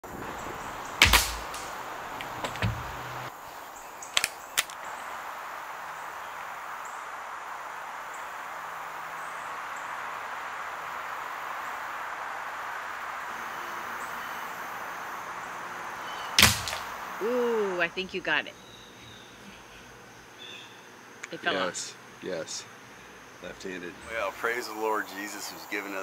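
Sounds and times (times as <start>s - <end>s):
outdoor background noise: 0.0s - 26.0s
sharp clicks: 1.0s - 3.0s, 4.1s - 4.8s, 16.4s - 17.0s.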